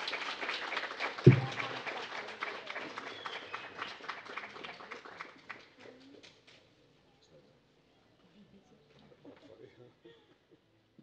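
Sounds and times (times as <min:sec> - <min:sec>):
audience applauding: 0:00.0 - 0:05.7
loud deep thump: 0:01.3 - 0:01.8.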